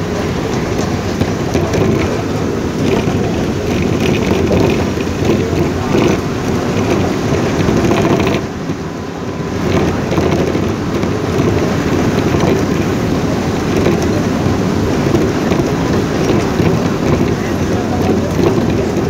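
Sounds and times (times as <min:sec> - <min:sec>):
rain on window glass: 0:00.0 - 0:19.0
vehicle interior rumble: 0:00.0 - 0:19.0.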